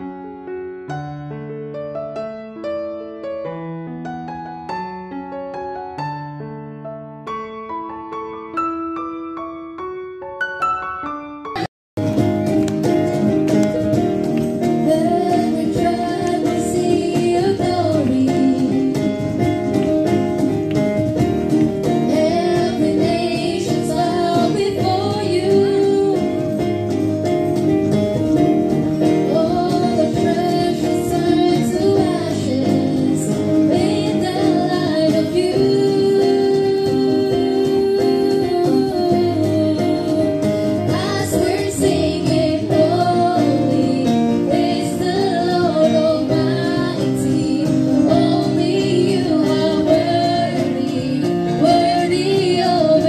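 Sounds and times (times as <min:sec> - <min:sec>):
keyboard: 0:00.0 - 0:53.0
acoustic guitar: 0:10.8 - 0:53.0
girl singing into microphone: 0:14.8 - 0:19.5, 0:21.9 - 0:26.6, 0:29.2 - 0:53.0
woman singing into microphone: 0:14.8 - 0:19.5, 0:22.0 - 0:26.6, 0:29.2 - 0:53.0.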